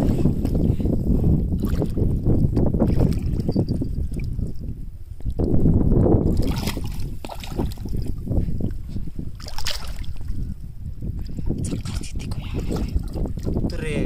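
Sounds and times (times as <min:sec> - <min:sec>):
wind noise on microphone: 0:00.0 - 0:14.0
fish splashing in water: 0:06.3 - 0:08.1, 0:09.4 - 0:10.3.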